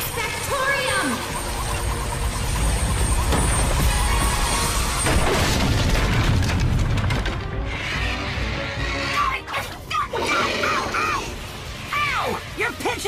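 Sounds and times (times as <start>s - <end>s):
dramatic background music: 0.0s - 13.0s.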